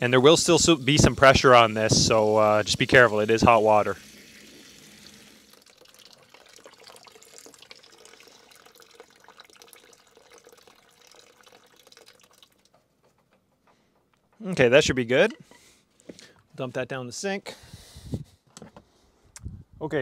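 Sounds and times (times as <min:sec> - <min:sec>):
water trickling into plastic basin: 0:00.8 - 0:13.6.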